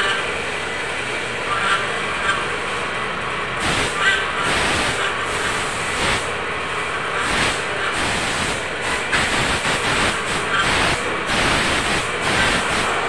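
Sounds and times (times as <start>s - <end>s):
machine shop noise: 0.0s - 13.0s
compressed air hissing: 3.6s - 6.3s, 7.2s - 12.9s.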